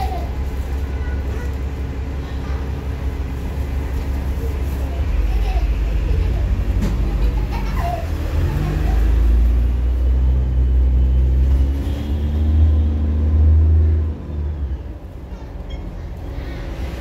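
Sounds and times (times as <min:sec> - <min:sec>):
bus diesel engine accelerating: 0:00.0 - 0:17.0.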